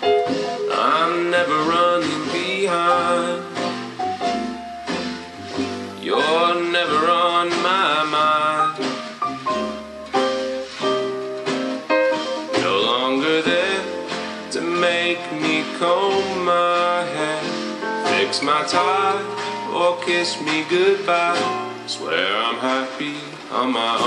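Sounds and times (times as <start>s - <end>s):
song with guitar and singing: 0.0s - 24.0s.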